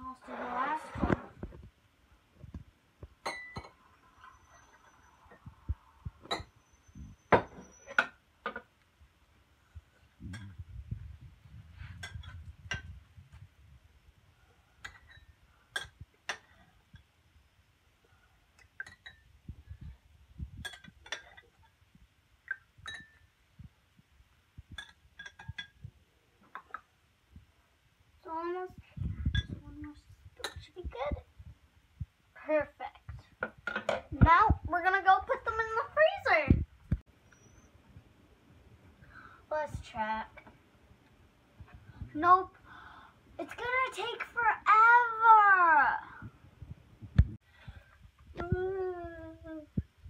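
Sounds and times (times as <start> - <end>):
glass cups clinking: 3.2 - 3.8, 6.2 - 6.6, 14.8 - 16.6, 18.8 - 19.3, 20.6 - 21.5, 22.5 - 23.3, 24.8 - 25.8
spoon clinking against glass: 3.2 - 3.8, 18.8 - 19.2, 22.8 - 23.3.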